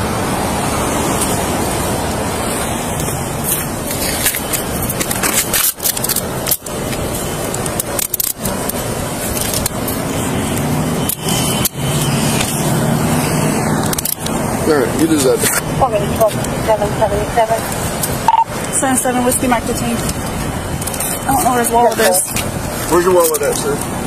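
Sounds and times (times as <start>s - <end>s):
sharp clicks and rattles: 3.4s - 12.7s, 13.7s - 14.4s, 19.8s - 24.0s.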